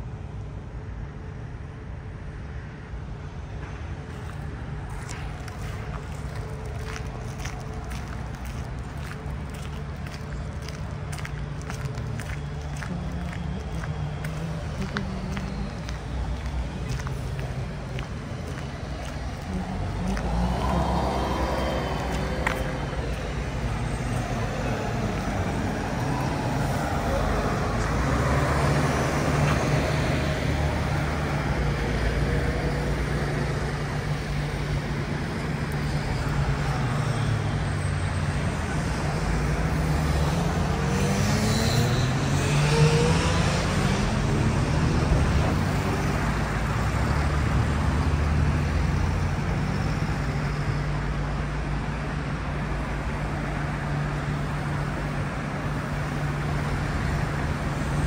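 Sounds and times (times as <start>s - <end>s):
road traffic rumble: 0.0s - 58.0s
vehicle accelerating past: 19.3s - 31.3s, 39.6s - 46.1s.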